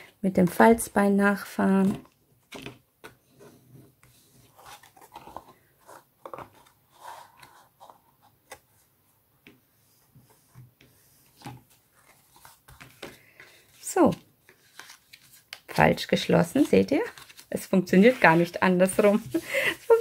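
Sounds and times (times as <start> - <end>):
paper handling: 11.4 - 15.8, 16.5 - 20.0.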